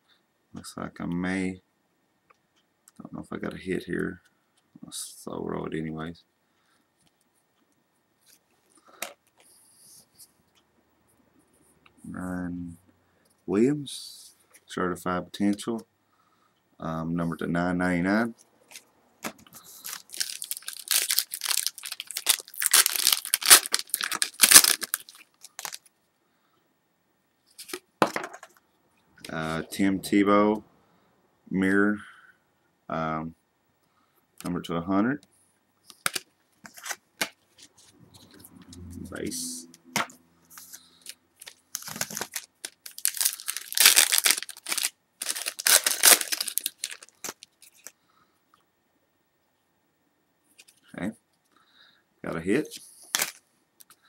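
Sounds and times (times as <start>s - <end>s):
foil wrapper tearing: 19.7s - 25.9s, 41.4s - 47.9s, 53.1s - 53.4s.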